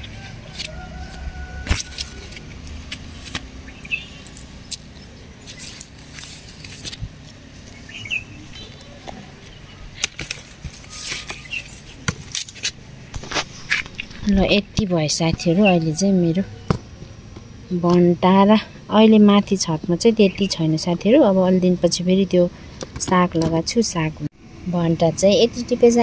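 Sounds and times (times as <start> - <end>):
plant leaves rustling: 0.0 - 16.4.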